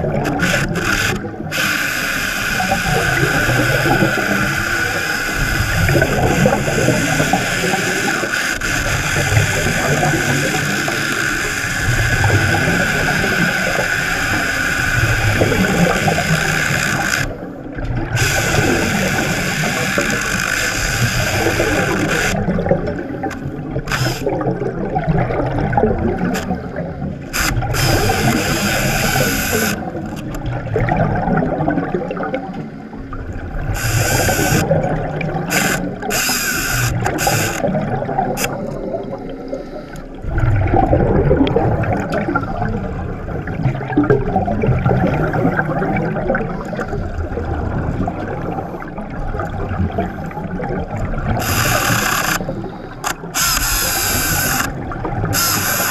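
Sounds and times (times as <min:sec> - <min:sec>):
underwater chainsaw rattle: 0:00.0 - 0:17.4, 0:18.1 - 0:24.7, 0:26.0 - 0:30.6, 0:33.6 - 0:34.8, 0:35.4 - 0:38.8, 0:51.3 - 0:55.9
short hissing bursts: 0:18.2 - 0:22.4, 0:27.4 - 0:29.8, 0:33.8 - 0:34.6, 0:35.5 - 0:37.6, 0:51.4 - 0:52.5, 0:53.3 - 0:54.7, 0:55.4 - 0:55.9.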